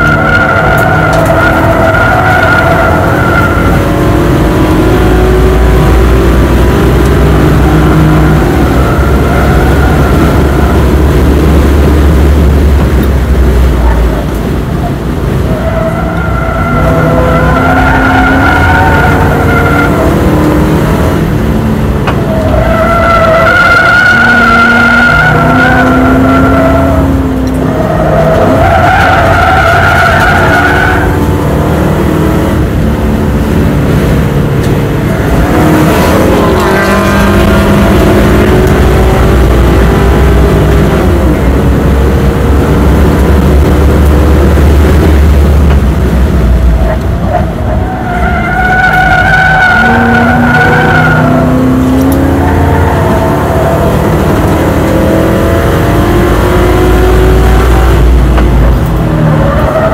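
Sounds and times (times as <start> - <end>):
car engine revving hard: 0.0 - 59.9
tyres squealing: 14.8 - 20.6, 22.2 - 32.3, 46.9 - 56.9.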